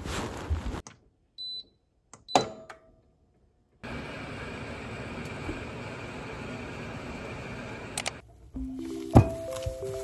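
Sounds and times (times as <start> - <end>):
washing machine beep: 1.4 - 2.5.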